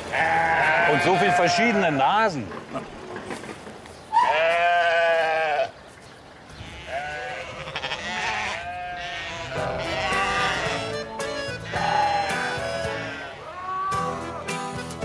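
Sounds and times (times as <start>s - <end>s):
sheep bleating: 0.1s - 2.1s, 4.1s - 5.7s, 6.6s - 14.3s.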